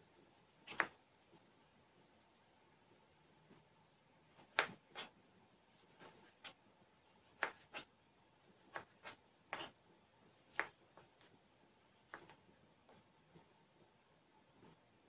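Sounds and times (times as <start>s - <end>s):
knife chopping on cutting board: 0.7s - 1.0s, 4.4s - 5.1s, 7.3s - 7.9s, 8.7s - 9.8s, 10.5s - 10.8s.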